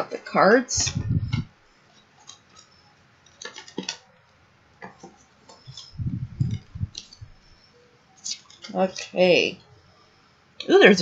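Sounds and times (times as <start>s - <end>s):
paper and card rustling: 0.8s - 4.1s, 4.8s - 7.6s.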